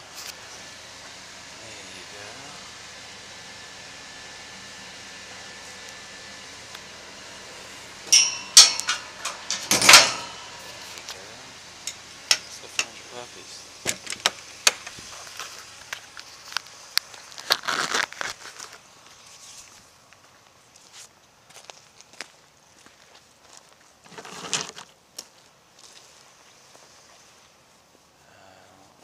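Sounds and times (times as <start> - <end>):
metal cage door clanking shut: 8.1 - 10.6
metal door bang: 8.1 - 10.6.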